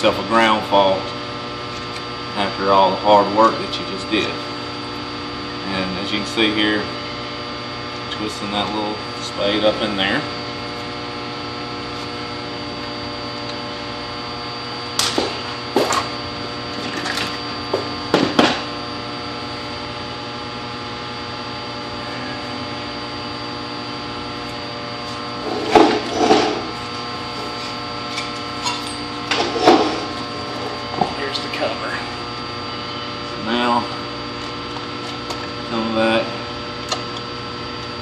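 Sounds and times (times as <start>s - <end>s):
electrical hum: 0.0s - 38.0s.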